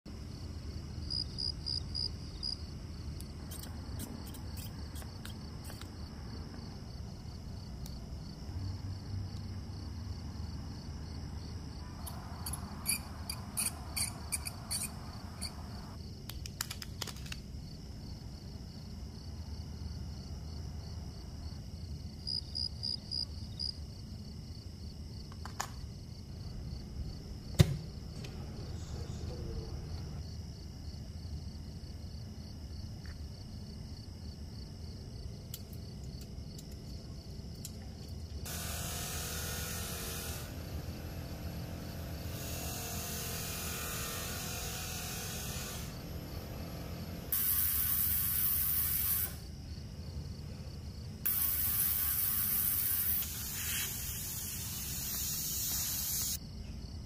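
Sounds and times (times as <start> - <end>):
steady low hum: 36.9 - 53.4.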